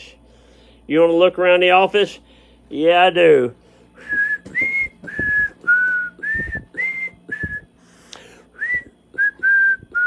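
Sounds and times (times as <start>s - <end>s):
person whistling a tune: 4.0s - 7.7s, 8.5s - 10.0s.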